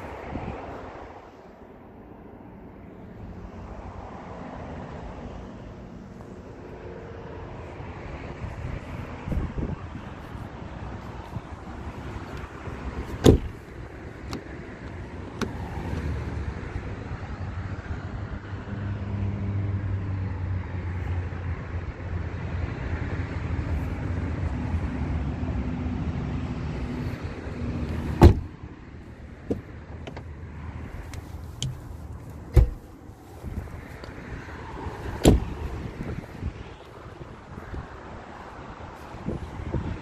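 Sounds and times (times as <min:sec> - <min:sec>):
car doors clunking and clicking: 0:12.1 - 0:16.2, 0:27.9 - 0:28.6, 0:29.4 - 0:33.0, 0:35.1 - 0:35.6
car door slam: 0:13.0 - 0:13.6, 0:28.0 - 0:28.5, 0:32.5 - 0:32.9, 0:35.2 - 0:35.6.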